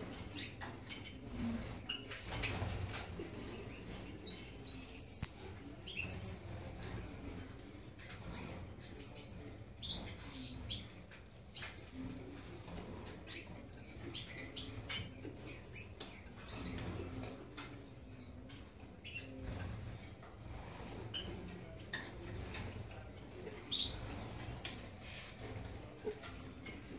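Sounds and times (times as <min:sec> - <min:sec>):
finches chirping: 0:00.0 - 0:06.5, 0:08.2 - 0:10.9.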